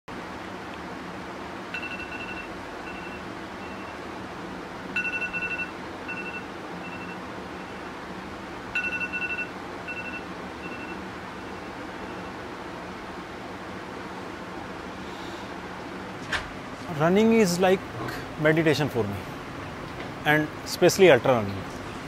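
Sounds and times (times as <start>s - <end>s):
steady low hum: 0.1s - 22.0s
electronic beeping pattern: 5.0s - 7.8s.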